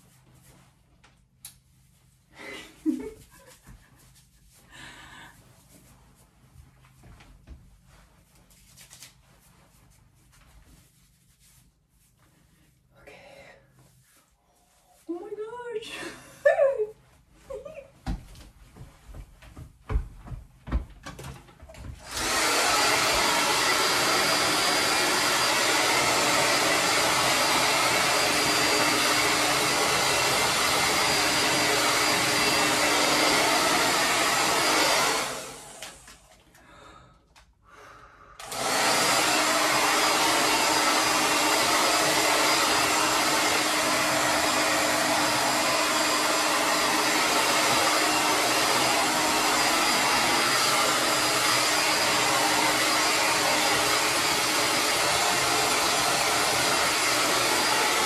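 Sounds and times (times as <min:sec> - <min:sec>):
hair dryer blowing: 0:21.8 - 0:36.6, 0:38.4 - 0:58.0.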